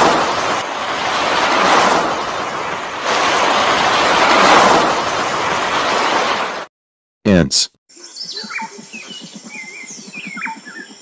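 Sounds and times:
sea waves washing in: 0.0s - 6.7s.

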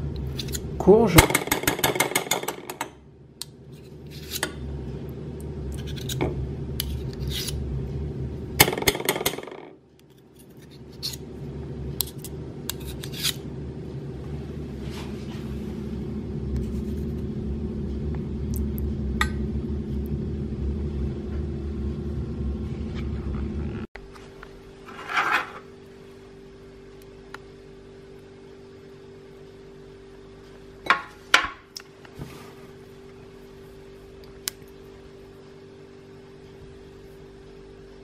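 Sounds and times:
steady low hum: 0.0s - 38.0s
metal spoons scraping a saucepan: 3.8s - 4.5s.

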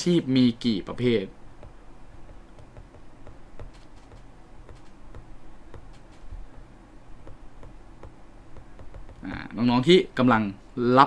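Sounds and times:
stylus tapping on tablet screen: 1.6s - 9.4s.

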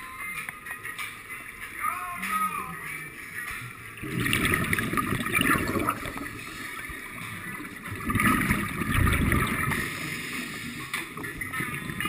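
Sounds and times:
underwater bubbles from regulator: 3.9s - 12.0s.

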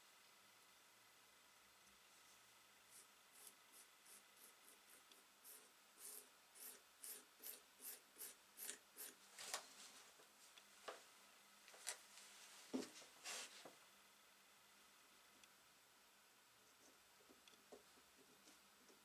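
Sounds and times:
bristle brush sweeping wood: 13.2s - 13.7s.

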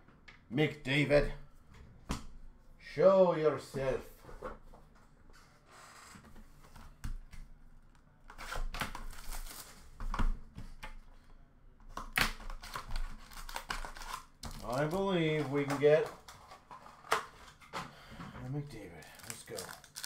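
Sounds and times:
foil wrapper tearing and crinkling: 8.8s - 9.8s, 12.5s - 15.7s, 19.0s - 20.0s.

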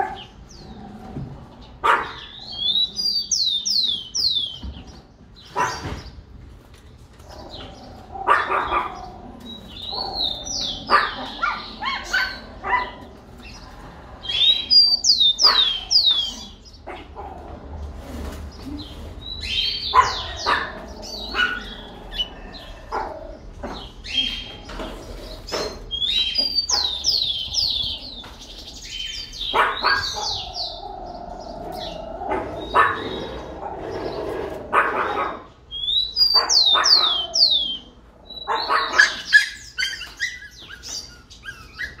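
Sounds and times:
dog barking: 1.8s - 2.3s, 5.5s - 5.9s, 8.2s - 9.1s, 10.0s - 13.0s, 15.4s - 15.9s, 19.9s - 21.8s, 29.5s - 30.5s, 32.3s - 33.2s, 34.7s - 35.5s, 36.3s - 37.3s, 38.4s - 40.2s.

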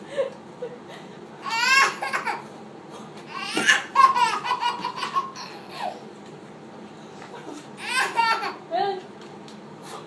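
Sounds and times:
baby laughing: 1.4s - 2.5s, 3.3s - 6.0s, 7.8s - 8.7s.

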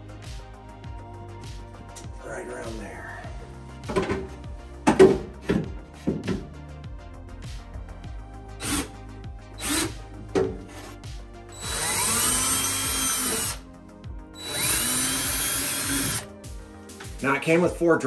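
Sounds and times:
background music with steady beat: 0.0s - 18.0s
cordless drill boring into drywall: 8.6s - 8.9s, 9.6s - 9.9s, 11.6s - 13.6s, 14.4s - 16.2s.

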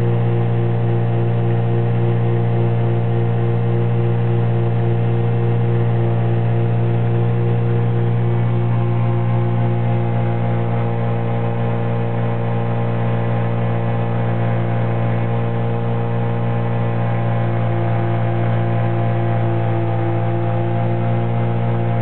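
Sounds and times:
aircraft engine and propeller droning: 14.7s - 22.0s.

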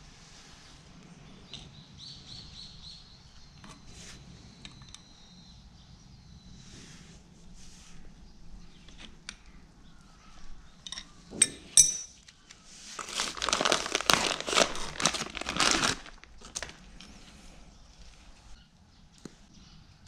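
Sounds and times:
metal clinks of tools: 10.8s - 12.2s
crackling crinkling handling noise: 12.2s - 19.4s.

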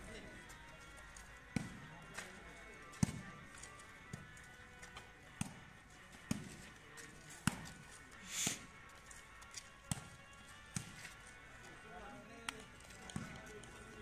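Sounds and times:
faint background music: 0.0s - 14.0s
volleyballs struck and bouncing: 1.1s - 9.1s, 9.8s - 11.2s, 12.5s - 13.8s.

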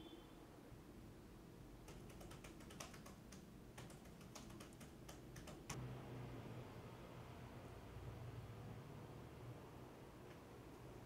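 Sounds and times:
faint laptop keyboard typing: 1.8s - 5.8s.

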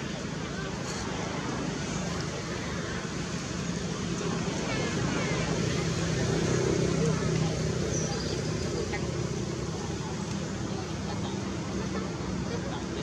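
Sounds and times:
rushing outdoor background noise: 0.0s - 13.0s.

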